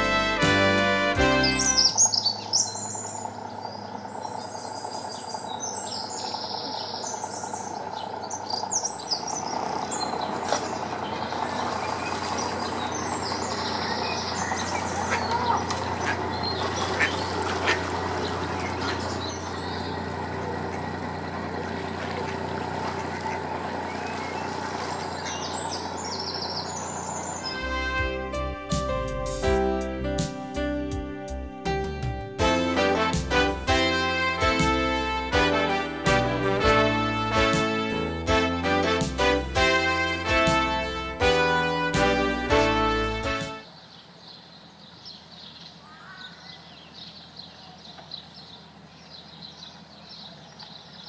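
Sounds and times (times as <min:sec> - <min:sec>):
boat diesel engine running: 0:00.0 - 0:43.8, 0:46.7 - 0:51.0
small birds singing: 0:01.1 - 0:28.4, 0:43.1 - 0:51.0
ducks quacking: 0:09.8 - 0:28.2.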